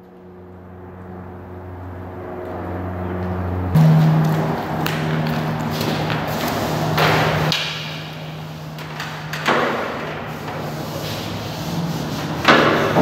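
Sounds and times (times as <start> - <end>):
steady low hum: 0.2 - 8.8.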